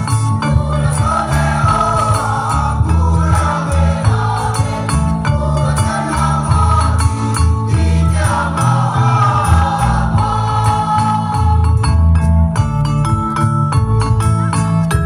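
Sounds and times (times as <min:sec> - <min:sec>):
low bass accompaniment: 0:00.0 - 0:15.0
sharp percussive strikes: 0:00.0 - 0:15.0
choir singing in parts: 0:00.4 - 0:11.9.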